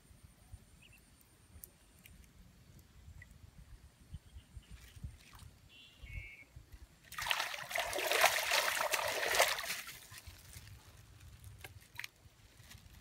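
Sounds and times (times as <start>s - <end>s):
water splashing and trickling: 4.7s - 5.8s, 7.0s - 13.0s.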